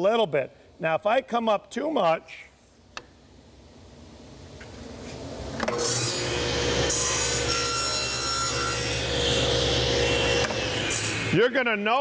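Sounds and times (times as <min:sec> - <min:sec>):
saw motor humming: 0:05.6 - 0:11.4
table saw cutting wood: 0:05.6 - 0:11.4.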